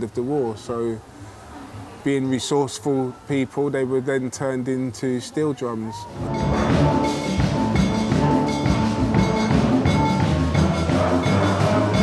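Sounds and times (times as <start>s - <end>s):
steel band playing: 6.1s - 12.0s
low bass line: 6.2s - 12.0s.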